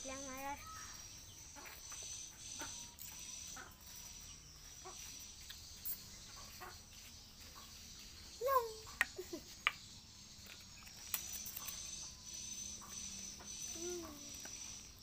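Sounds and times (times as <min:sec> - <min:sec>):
faint high insect drone: 0:00.0 - 0:15.0.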